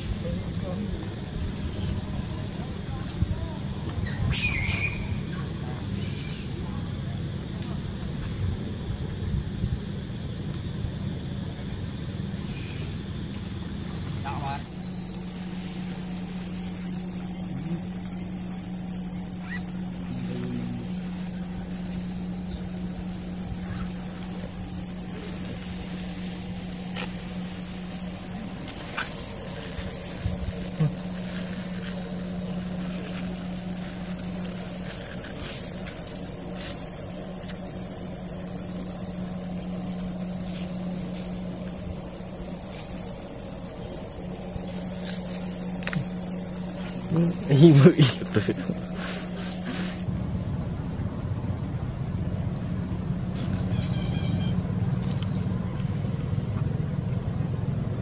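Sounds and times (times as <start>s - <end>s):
insects buzzing: 0.0s - 58.0s
low hum: 10.5s - 58.0s.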